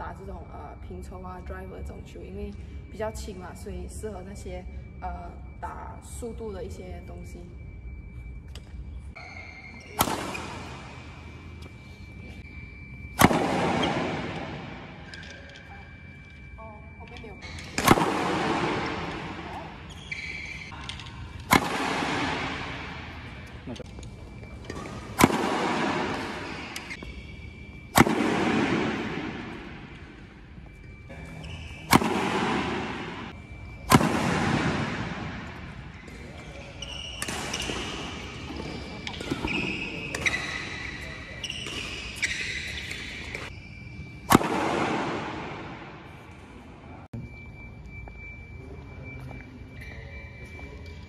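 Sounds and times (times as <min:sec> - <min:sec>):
racquet hitting shuttlecock: 0:09.9 - 0:11.0, 0:17.6 - 0:19.4, 0:20.9 - 0:23.9, 0:24.7 - 0:27.1, 0:27.9 - 0:30.1, 0:31.9 - 0:35.7, 0:37.2 - 0:40.9, 0:44.3 - 0:45.9
echo in a hall: 0:13.1 - 0:51.0
badminton racquet smashing shuttlecock: 0:21.4 - 0:22.8, 0:27.9 - 0:29.4.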